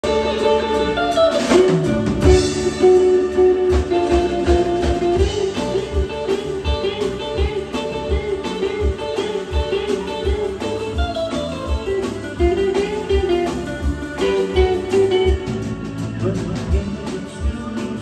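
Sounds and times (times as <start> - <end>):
bass guitar: 0.0 - 18.0
guitar notes: 0.0 - 18.0.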